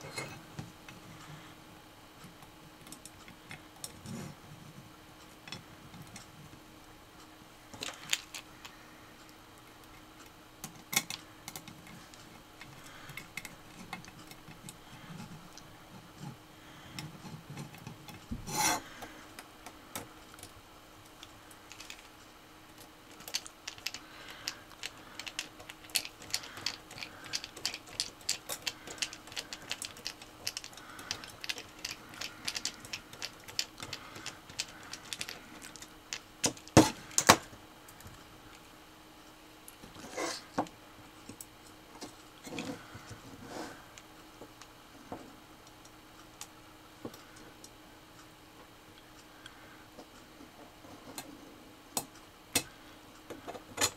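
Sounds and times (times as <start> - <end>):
rasping scrape: 18.4 - 18.9, 40.0 - 40.5
screwdriver clicking and scraping: 23.2 - 37.4.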